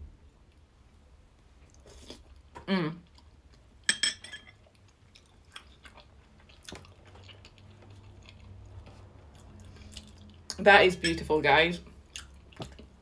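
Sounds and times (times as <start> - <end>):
soft chewing: 1.3 - 10.6, 11.8 - 13.0
person humming: 2.6 - 3.0.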